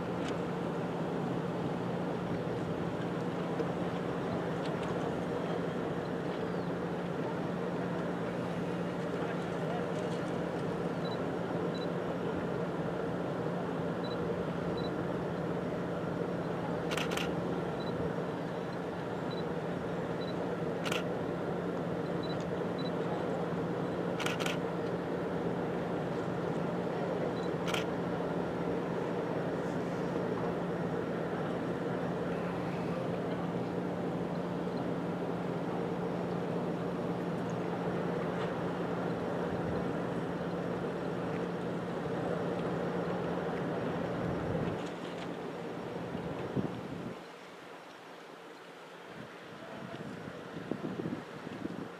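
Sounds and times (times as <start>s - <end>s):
motorboat engine humming: 0.0s - 51.9s
water noise: 0.0s - 51.9s
wind: 0.0s - 51.9s
camera running hum: 16.8s - 18.0s, 20.2s - 21.2s, 24.1s - 25.0s, 27.3s - 28.0s
sharp camera clicks: 16.9s - 17.4s, 20.8s - 21.1s, 24.2s - 24.6s, 27.6s - 27.9s.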